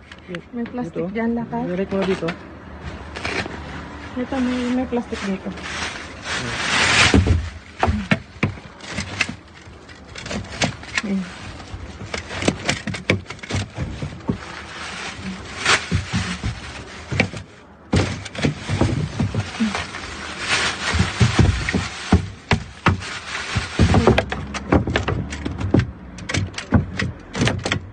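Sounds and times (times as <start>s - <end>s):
bags rustling and crinkling: 0.0s - 27.7s
grabber pole knocking on bin: 20.9s - 27.9s.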